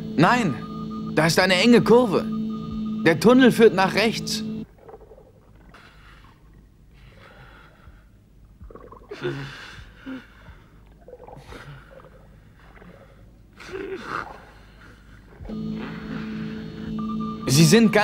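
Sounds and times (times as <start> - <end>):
steady low hum: 0.0 - 13.6, 14.5 - 18.0
divers gasping for breath: 9.1 - 17.0.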